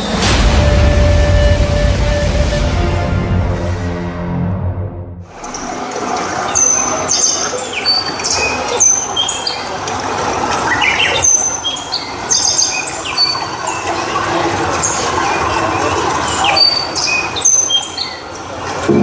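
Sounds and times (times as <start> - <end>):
birds chirping and whistling: 6.5 - 9.7, 10.7 - 13.9, 15.7 - 18.2.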